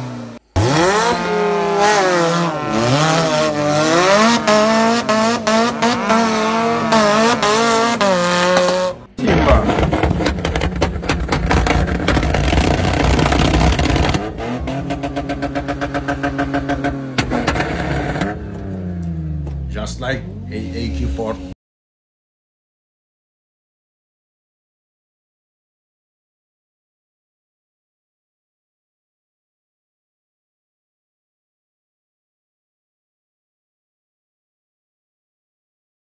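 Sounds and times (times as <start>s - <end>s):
buggy engine revving: 0.0s - 21.6s
steady pulsing engine note: 0.0s - 21.6s
rough engine with sharp cracks: 7.4s - 19.7s.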